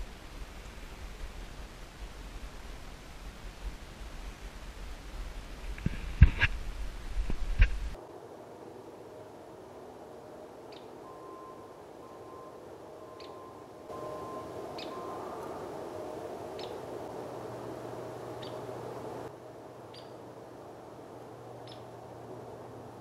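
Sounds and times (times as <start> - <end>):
background hiss: 0.0 - 23.0
bird chirping: 10.7 - 15.7, 16.5 - 17.0, 18.3 - 19.3, 19.9 - 20.2, 21.6 - 21.9.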